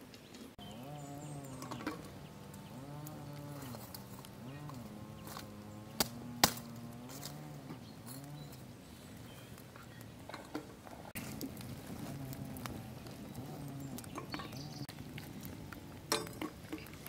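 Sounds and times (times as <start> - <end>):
farm animals calling faintly: 0.6 - 11.1, 11.8 - 14.9.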